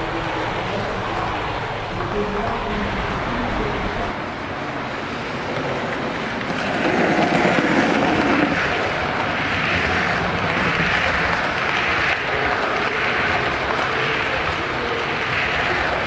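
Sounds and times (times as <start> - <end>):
model train wheels rumbling: 0.0 - 16.0.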